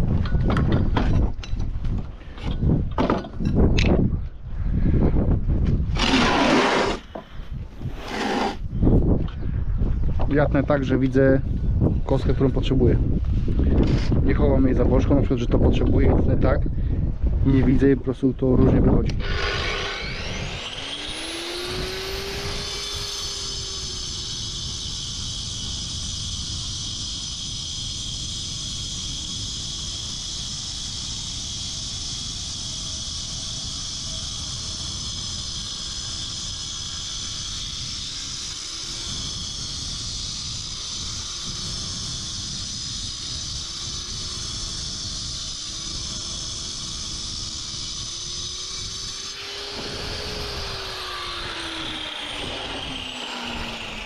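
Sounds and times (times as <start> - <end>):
saw blade winding down whine: 5.8 - 8.8, 17.5 - 54.0
power saw cutting concrete: 5.9 - 8.7, 19.0 - 54.0.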